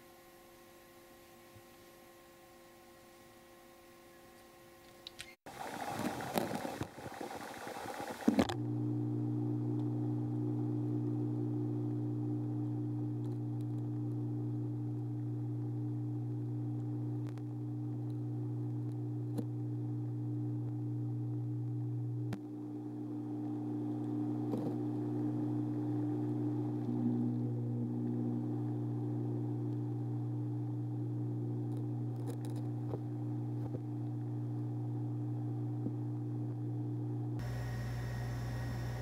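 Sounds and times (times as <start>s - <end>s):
churning water: 5.5s - 8.4s
water pumps humming: 5.5s - 9.0s, 25.0s - 32.2s, 37.4s - 39.0s.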